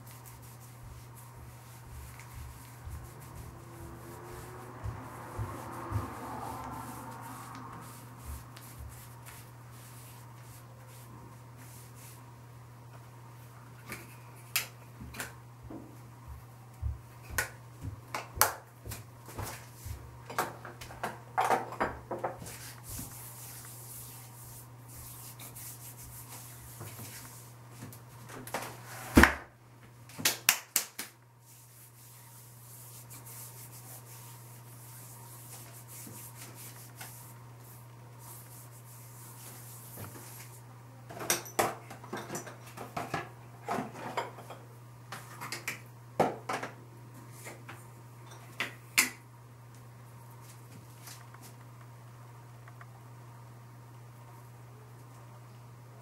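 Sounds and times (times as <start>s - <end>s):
hands patting skin: 0.0s - 6.2s
steady low hum: 0.0s - 21.1s.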